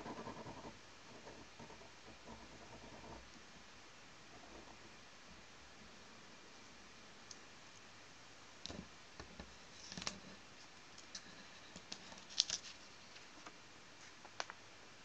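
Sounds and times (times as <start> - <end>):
paper rustling and light taps: 8.7 - 10.2, 11.0 - 14.6.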